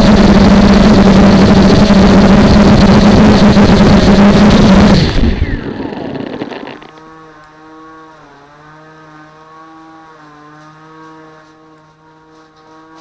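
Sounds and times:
drone motors idling hum: 0.0 - 8.5.

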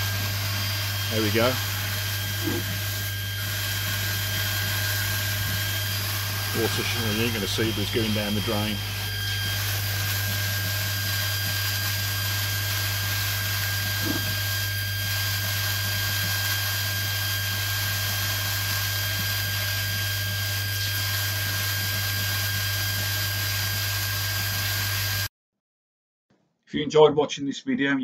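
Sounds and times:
water jets spraying: 0.0 - 10.8
pump humming and whining: 0.0 - 25.3.

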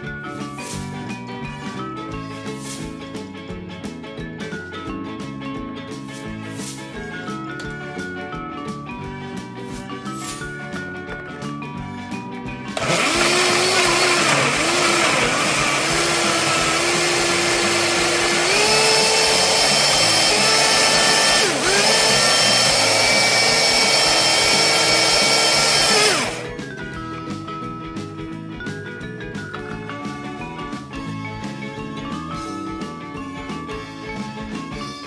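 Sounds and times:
blender motor whine: 12.8 - 26.6.

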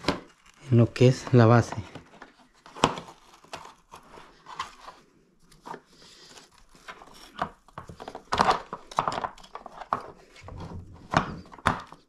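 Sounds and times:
plastic clicking and knocking: 7.4 - 12.0.

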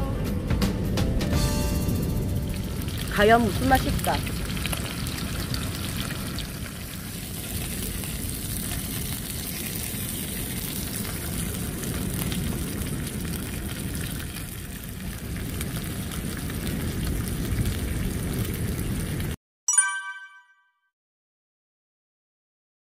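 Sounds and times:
meat sizzling in a pan: 1.8 - 19.3
spitting fat crackle: 2.6 - 19.4
wind rumble on microphone: 7.4 - 19.4.

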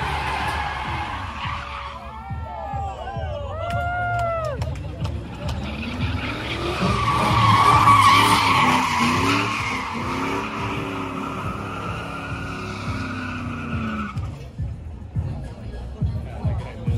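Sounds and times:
truck engine revving: 0.0 - 2.0, 4.8 - 14.4
tyres squealing: 5.6 - 14.3.

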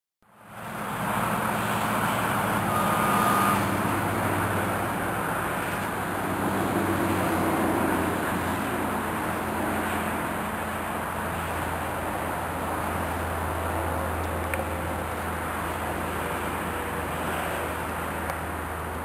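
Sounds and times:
outdoor rumble and hiss: 0.3 - 19.0
thin high tone: 2.0 - 3.9.

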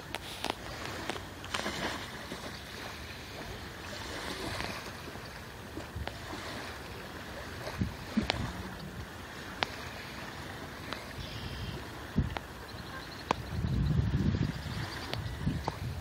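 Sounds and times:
small waves lapping on shore: 0.0 - 16.0.

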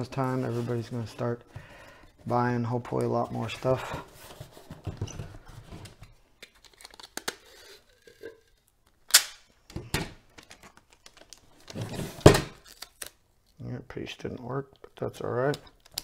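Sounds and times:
packing tape tearing: 6.4 - 8.0, 12.5 - 13.2.

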